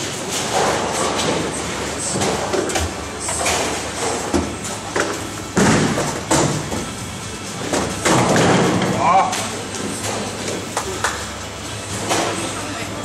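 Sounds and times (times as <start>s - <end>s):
bowling balls rolling: 0.0s - 12.5s
bowling pins crashing: 0.2s - 7.0s, 7.6s - 9.0s.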